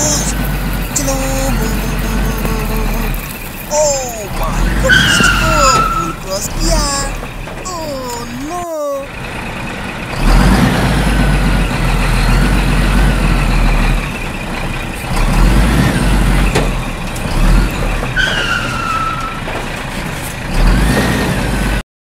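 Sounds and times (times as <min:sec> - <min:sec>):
truck engine rumble: 0:00.0 - 0:21.8
falling squeal: 0:04.6 - 0:06.2, 0:18.2 - 0:19.5.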